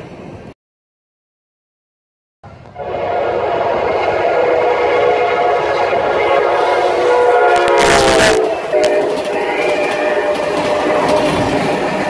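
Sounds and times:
locomotive air horn blast: 2.7 - 12.0.

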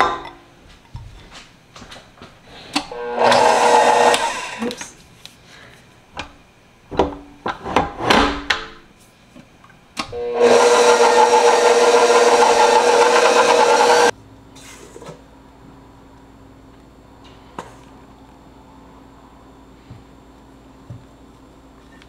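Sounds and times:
stand mixer whipping: 3.0 - 4.7, 10.2 - 14.1.

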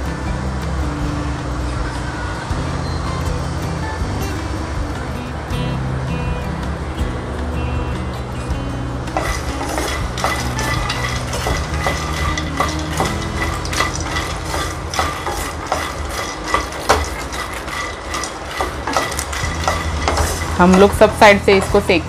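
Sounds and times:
wooden spatula scraping a pan: 9.1 - 22.0.

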